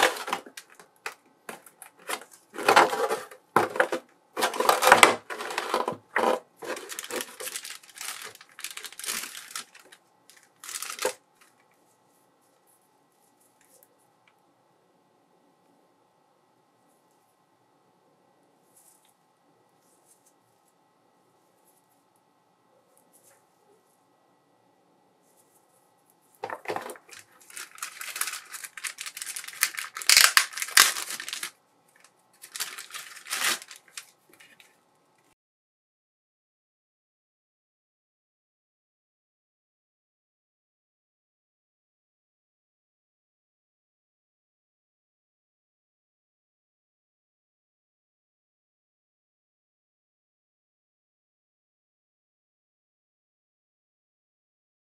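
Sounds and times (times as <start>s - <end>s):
plastic bag crinkling: 0.0s - 11.6s, 26.4s - 34.7s.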